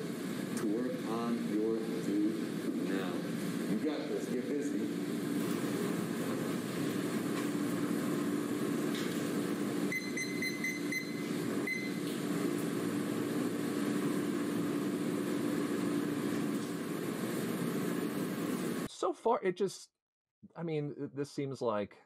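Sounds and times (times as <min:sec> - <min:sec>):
classroom room noise hum and hiss: 0:00.0 - 0:07.0
high electronic beeps: 0:09.9 - 0:12.0.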